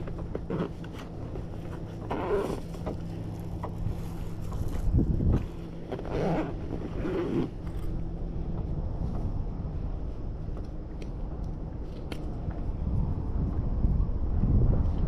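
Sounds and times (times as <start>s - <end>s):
handling rustle: 0.0s - 8.1s
wind rumble on microphone: 0.0s - 15.0s.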